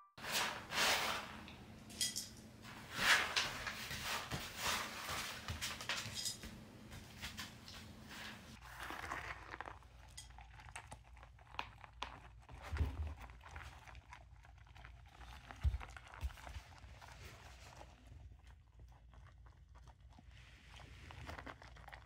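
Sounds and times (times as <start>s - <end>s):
puppy crunching kibble: 8.6s - 22.0s.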